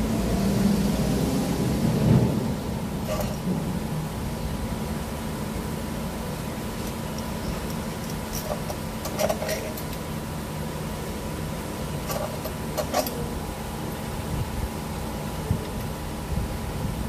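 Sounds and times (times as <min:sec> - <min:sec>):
low background hum: 0:02.0 - 0:17.0
hand tools clinking on metal: 0:06.8 - 0:10.0, 0:12.0 - 0:13.3.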